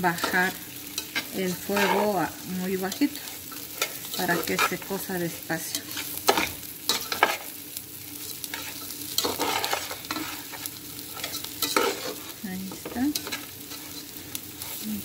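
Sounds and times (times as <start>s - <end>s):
rice sizzling: 0.0s - 15.0s
metal spoon scraping a pot: 8.5s - 14.8s.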